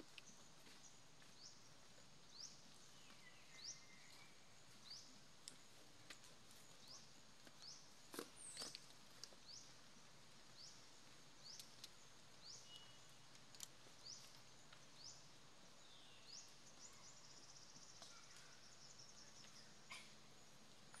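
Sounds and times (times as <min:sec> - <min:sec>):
small animal high-pitched chirp: 0:19.8 - 0:20.2.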